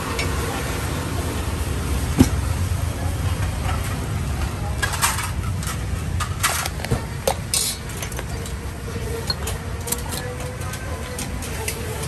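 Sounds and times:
dishes and utensils clinking: 4.8 - 11.9.

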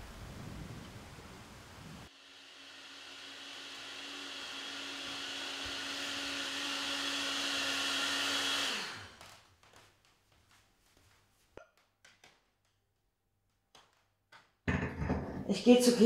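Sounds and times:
electric blender running: 2.1 - 9.4.

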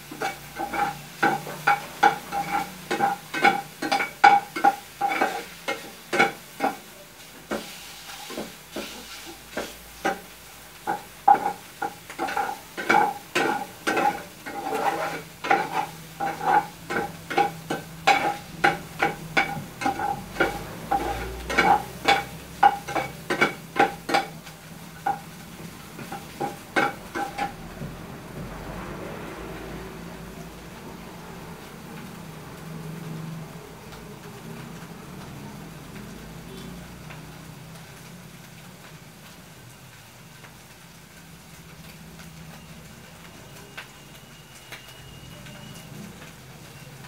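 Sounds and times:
metal spoon scraping frying pan: 0.0 - 27.7
fat sizzling: 0.0 - 47.0.

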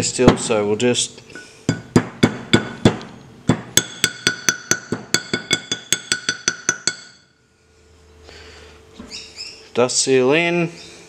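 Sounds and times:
small hammer tapping metal: 1.7 - 7.3.

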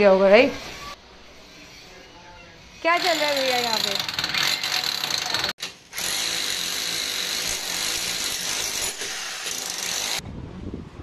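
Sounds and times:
demolition hammer on concrete: 2.9 - 10.2.

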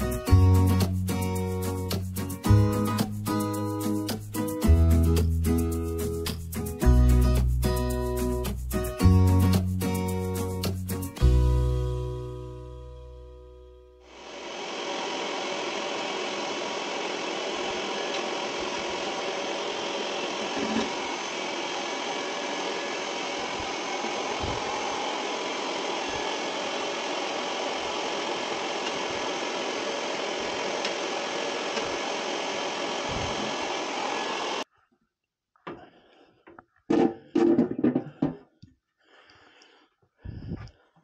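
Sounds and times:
vacuum cleaner running: 14.0 - 34.6.

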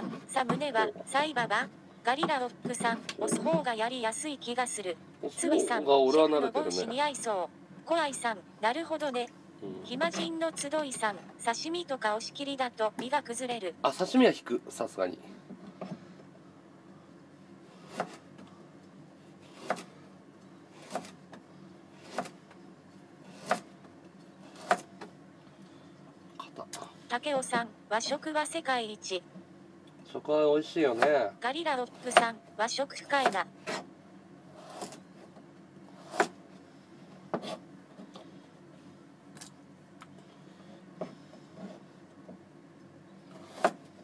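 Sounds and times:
knife cutting on plastic board: 17.8 - 18.2, 19.4 - 19.9, 20.8 - 21.2, 22.0 - 22.4, 34.6 - 35.0, 36.0 - 36.4, 37.3 - 37.6, 43.3 - 43.9.

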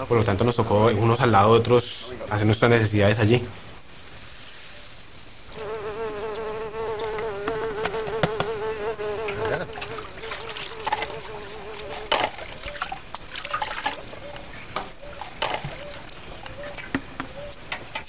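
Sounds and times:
fly buzzing: 5.5 - 13.4.

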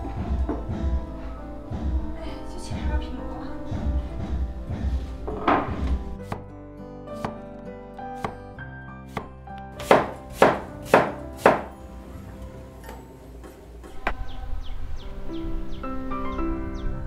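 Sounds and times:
cleaver chopping on wooden board: 9.1 - 11.7.

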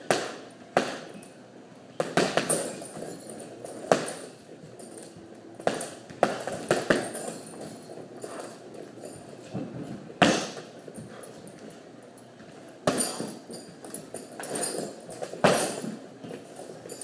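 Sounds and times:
gloves punching heavy bag: 2.0 - 4.3, 5.6 - 11.2, 12.8 - 17.0.

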